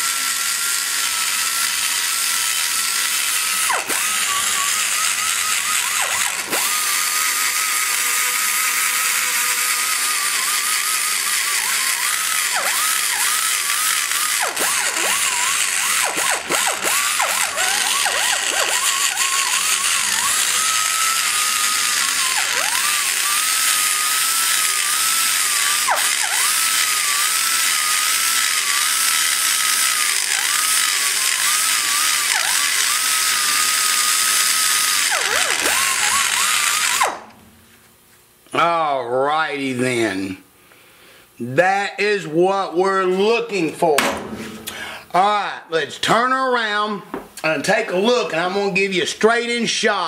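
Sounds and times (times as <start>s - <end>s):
die grinder whining: 0.0s - 37.6s.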